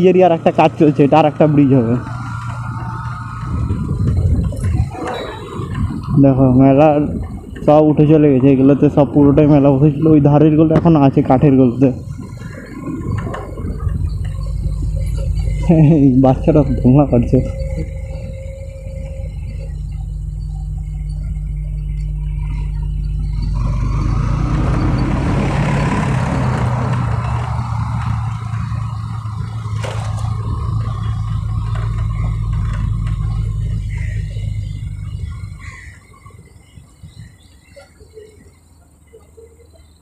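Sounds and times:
motorcycle engine running: 0.0 - 37.7
wind rushing over microphone: 3.2 - 11.0, 11.7 - 15.7.

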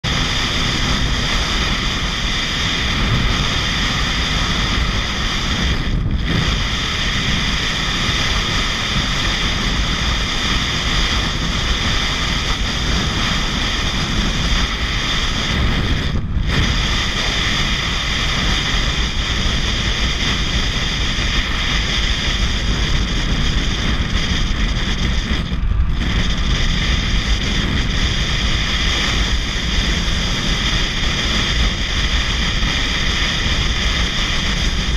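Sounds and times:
motorcycle engine: 0.0 - 34.9
wind rush over microphone: 0.0 - 34.9.

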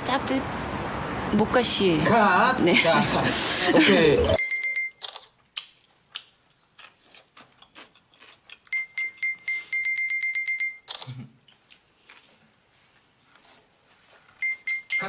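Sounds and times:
smartphone beeping: 4.4 - 5.1, 8.7 - 11.1, 14.4 - 15.0
rapid camera clicking: 5.0 - 5.3.

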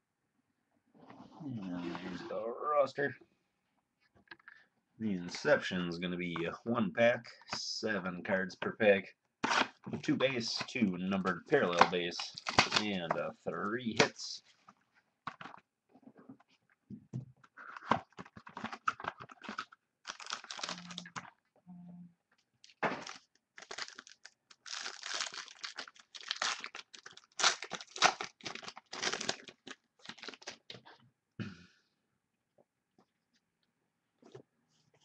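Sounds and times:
wrapper tearing and crinkling: 12.2 - 12.9, 17.7 - 21.3, 22.6 - 30.8.

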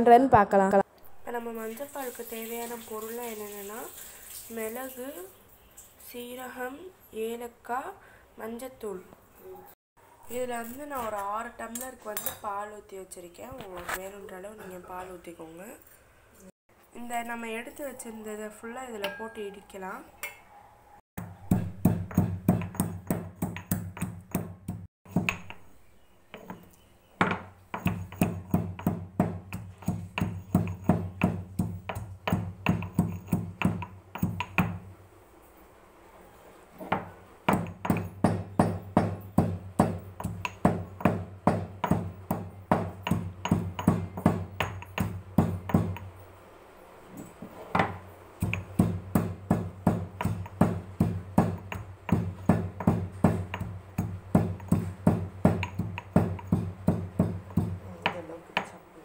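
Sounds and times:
stone pestle pounding in mortar: 21.2 - 25.6, 27.2 - 34.8, 36.9 - 46.1, 47.7 - 58.7.

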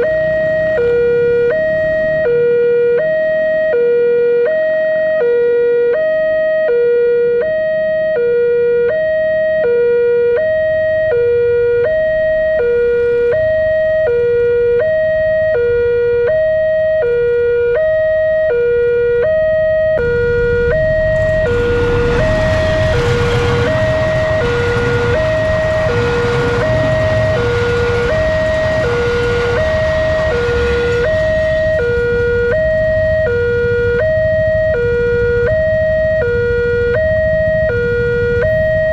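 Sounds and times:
loud rumbling noise: 0.0 - 2.6, 19.9 - 38.9
level crossing two-tone alarm: 0.0 - 38.9.

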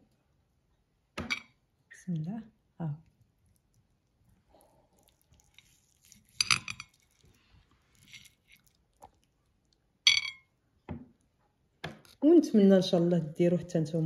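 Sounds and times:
cutlery clinking on ceramic plate: 1.2 - 1.6, 6.3 - 7.0, 10.1 - 10.5.

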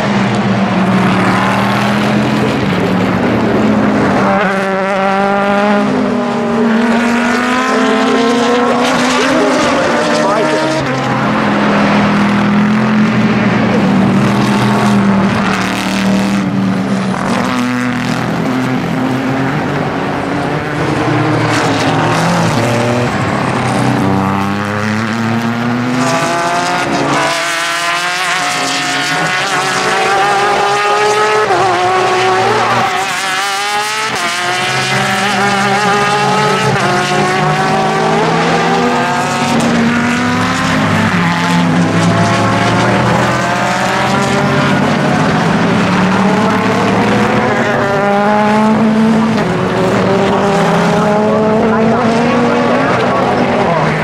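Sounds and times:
race cars passing at speed: 0.0 - 54.0
engine pitch rising and dropping: 1.0 - 16.5.

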